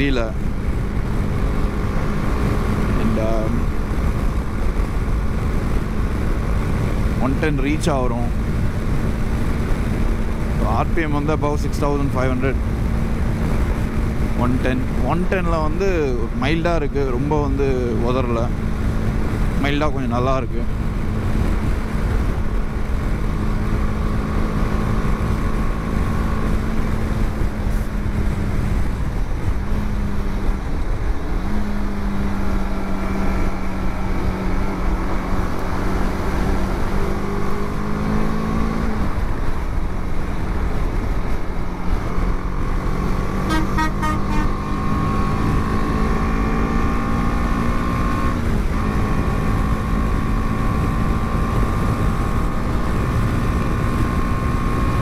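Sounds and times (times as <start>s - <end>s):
wind rumble on microphone: 0.0s - 15.5s, 20.5s - 43.5s
motorcycle engine cruising: 0.0s - 55.0s.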